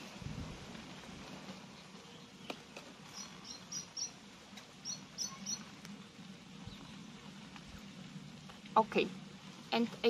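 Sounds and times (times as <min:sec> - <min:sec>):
small bird chirping: 0:02.0 - 0:05.8, 0:06.6 - 0:07.2.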